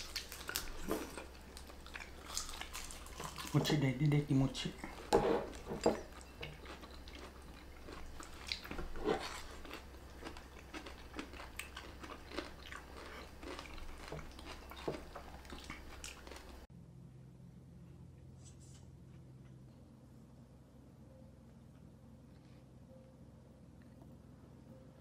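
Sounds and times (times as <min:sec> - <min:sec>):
people chewing: 0:00.0 - 0:03.9, 0:04.7 - 0:16.7.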